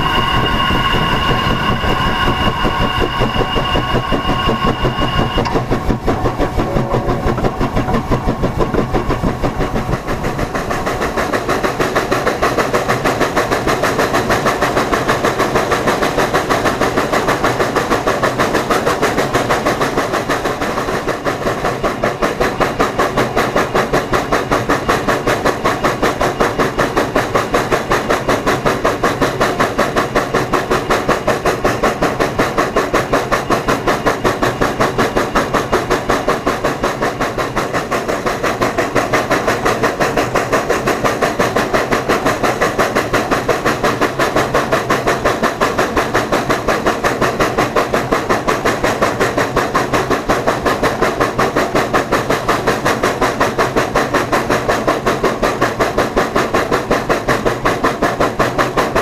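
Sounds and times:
steady high tone: 0.0 - 9.8
steam locomotive exhaust chuffing: 0.0 - 59.0.

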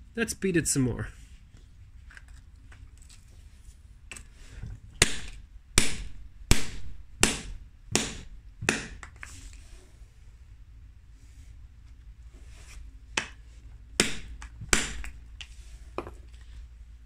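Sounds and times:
hammer pounding resin: 5.0 - 9.1, 14.0 - 15.2.

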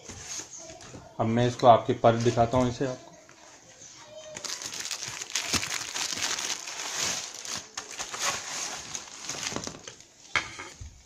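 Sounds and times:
plastic and cardboard crinkling: 3.4 - 10.1.

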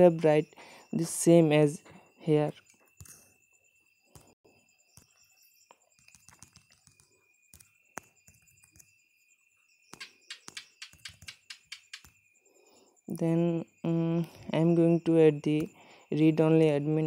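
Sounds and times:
fingers tapping touchscreen: 5.8 - 8.9, 9.9 - 12.2.

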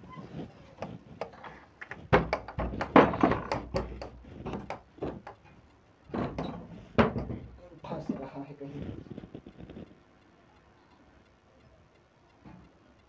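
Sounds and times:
wooden cot frame knocking: 2.0 - 5.4, 6.1 - 7.4.

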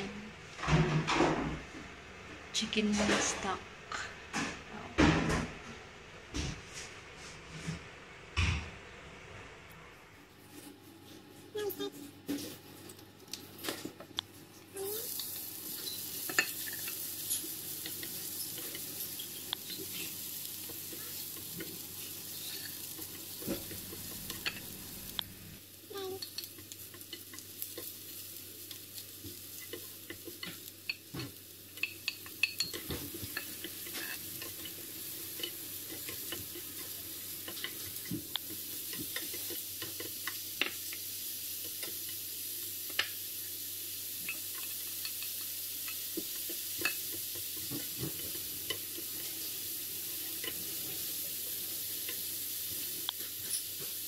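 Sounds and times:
food sizzling in frying pan: 10.4 - 54.0
spatula scraping and tapping pan: 15.2 - 24.8, 28.7 - 41.0.

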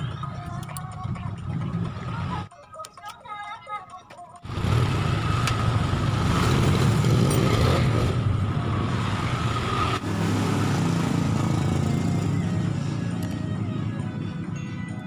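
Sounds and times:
engine running: 4.4 - 15.0.

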